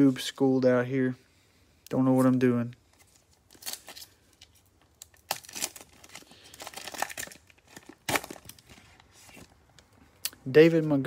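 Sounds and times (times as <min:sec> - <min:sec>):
foil pack crinkling: 0:03.0 - 0:09.6.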